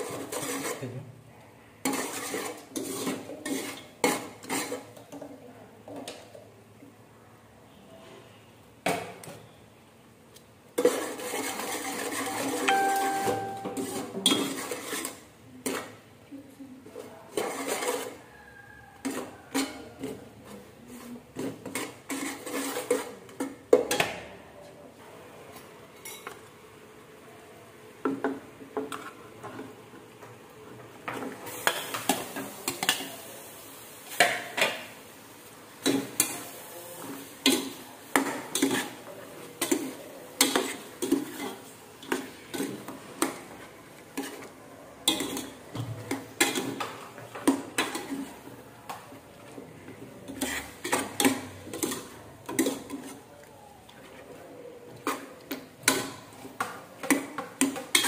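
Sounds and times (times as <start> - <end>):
metal spoon scraping saucepan: 0.0 - 0.8, 1.8 - 5.0, 10.8 - 15.9, 17.3 - 18.2, 21.4 - 23.2, 50.2 - 53.2
meat sizzling: 31.4 - 39.0.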